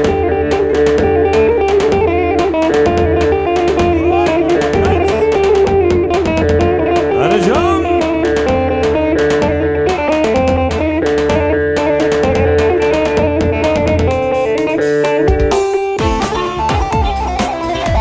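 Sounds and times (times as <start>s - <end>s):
steady drum beat: 3.5s - 6.2s, 7.1s - 8.4s.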